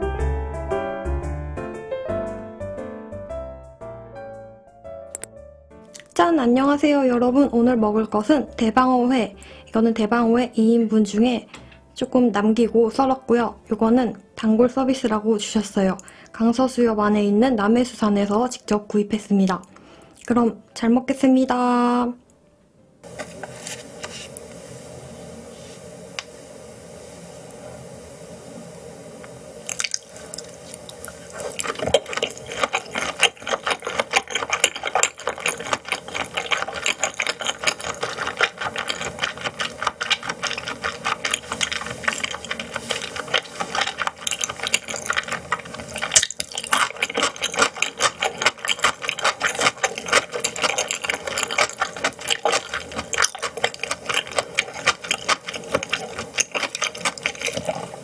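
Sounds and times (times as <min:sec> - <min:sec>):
wet chewing mouth clicks: 0:05.9 - 0:06.2, 0:29.7 - 0:58.0.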